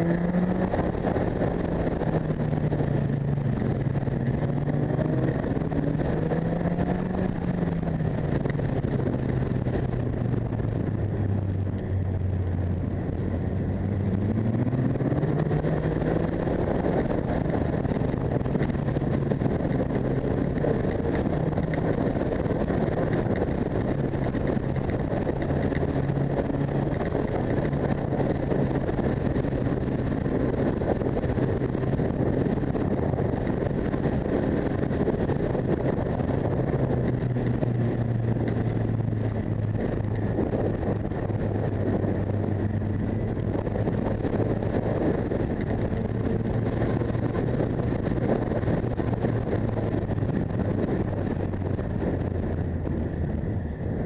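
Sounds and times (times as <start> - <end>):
motorcycle engine: 0.0 - 54.0
wind rushing over microphone: 0.0 - 54.0.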